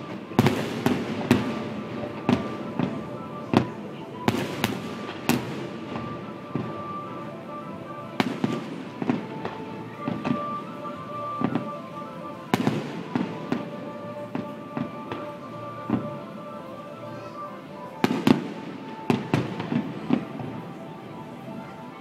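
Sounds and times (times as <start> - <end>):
music playing: 0.0 - 22.0
firework pops and crackles: 0.1 - 3.7, 4.3 - 6.7, 18.0 - 20.5.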